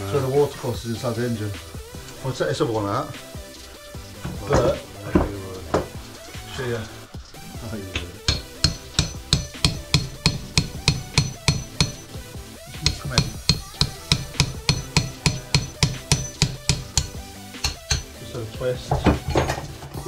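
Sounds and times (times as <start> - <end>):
hammer striking metal: 8.0 - 18.2.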